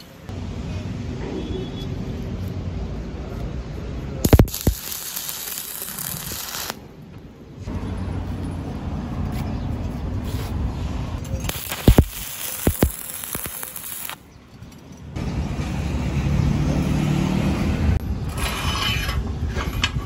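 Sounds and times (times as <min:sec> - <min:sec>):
welding arc crackling and sizzling: 0:04.2 - 0:06.8, 0:11.4 - 0:14.3
welding arc pops: 0:04.2 - 0:06.8, 0:11.5 - 0:14.2.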